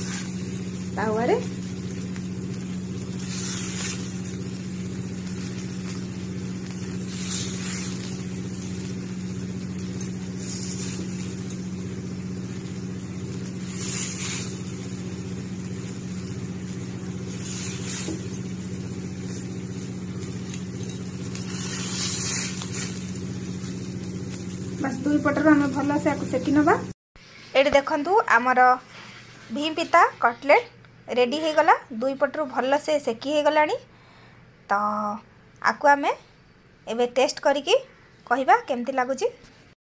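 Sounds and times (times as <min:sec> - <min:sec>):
oil sizzling on hot pan: 0:00.0 - 0:30.2
steady low hum: 0:00.0 - 0:38.3.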